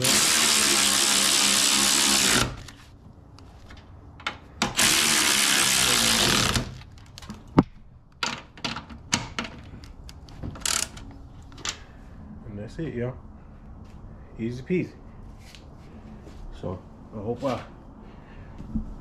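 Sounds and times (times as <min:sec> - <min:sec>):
power ratchet running: 0:00.0 - 0:02.7, 0:04.6 - 0:06.8.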